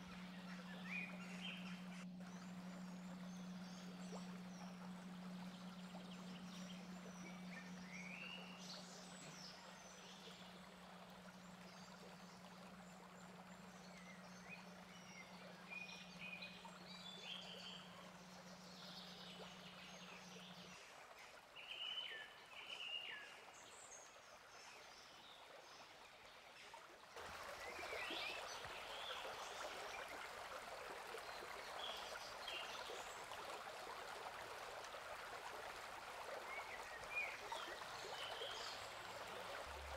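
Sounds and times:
faint low hum: 0.0 - 22.7.

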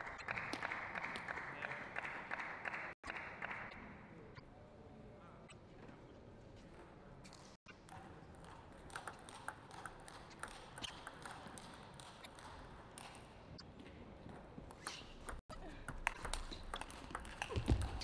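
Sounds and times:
table tennis ball hits: 7.8 - 13.3, 14.7 - 18.0.

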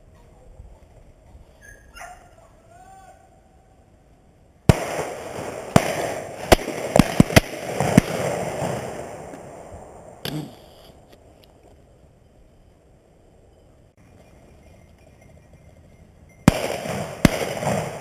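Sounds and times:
shotgun bangs: 16.5 - 18.0.

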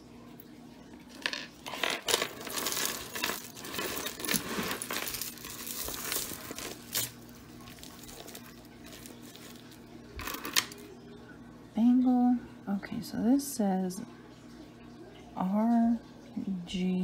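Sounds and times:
jewelry clinking and rattling: 1.1 - 10.9.

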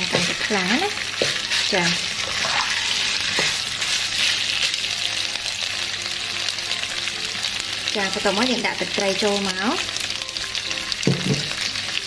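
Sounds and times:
fish sizzling in hot oil: 0.0 - 12.0
knock: 11.0 - 11.5.

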